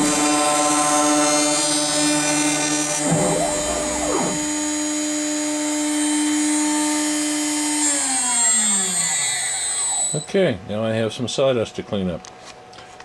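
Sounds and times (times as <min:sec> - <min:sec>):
router spindle high whine: 0:00.0 - 0:10.3
drive motors whirring: 0:02.4 - 0:04.8.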